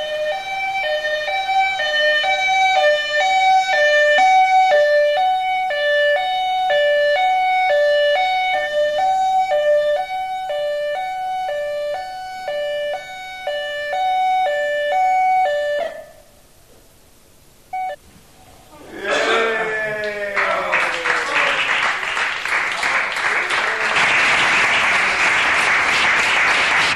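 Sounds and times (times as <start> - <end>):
ambulance two-tone siren: 0.0 - 16.3
applause: 20.0 - 26.9.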